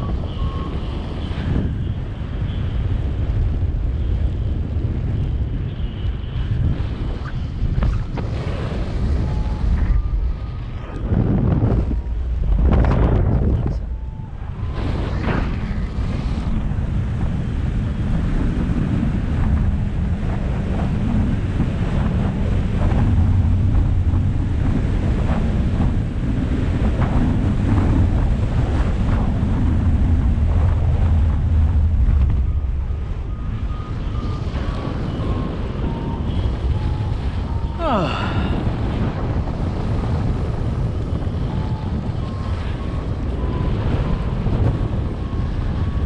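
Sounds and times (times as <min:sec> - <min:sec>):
wind buffeting microphone: 0:00.0 - 0:46.0
variometer beeps: 0:09.0 - 0:14.9, 0:32.3 - 0:38.6.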